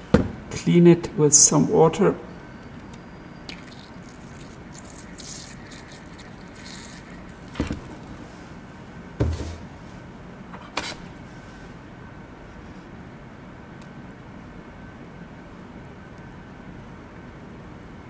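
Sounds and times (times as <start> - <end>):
wash bottle squirting hiss: 3.5 - 8.0
bottle knocking: 9.2 - 9.6.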